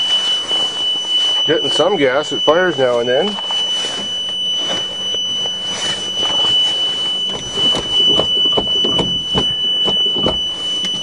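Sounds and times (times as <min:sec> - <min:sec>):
high-pitched whine: 0:00.0 - 0:11.0
engine knocking: 0:07.3 - 0:10.5.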